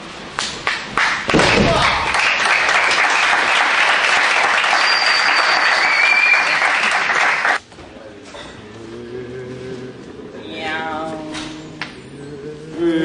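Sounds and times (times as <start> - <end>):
crowd applauding: 0.6 - 7.6
high whistle: 4.6 - 6.9.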